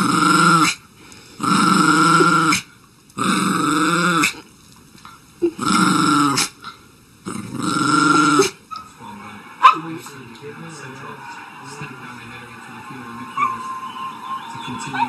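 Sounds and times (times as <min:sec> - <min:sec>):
dog growling: 0:00.0 - 0:00.8, 0:01.4 - 0:04.4, 0:05.4 - 0:06.6, 0:07.2 - 0:08.6.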